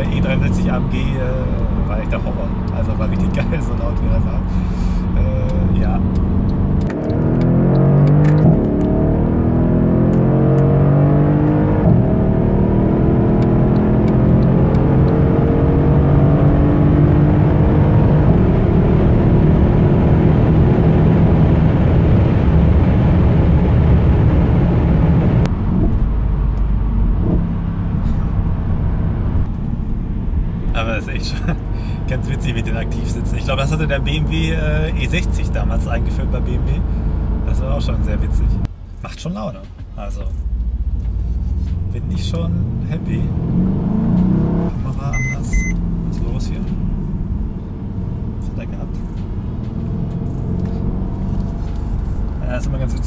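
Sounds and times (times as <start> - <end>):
gear upshifts: 0.0 - 19.2, 39.5 - 53.0
car engine accelerating hard: 0.0 - 38.7, 40.2 - 53.0.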